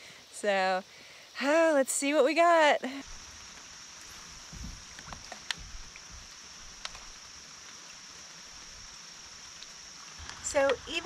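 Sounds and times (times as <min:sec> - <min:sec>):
steady high hiss: 0:00.0 - 0:11.0
soft water movement: 0:02.8 - 0:11.0.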